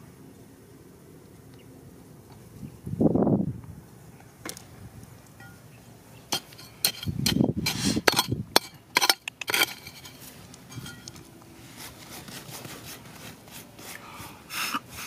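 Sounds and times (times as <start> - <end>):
chisel bar scraping rock: 6.3 - 11.2.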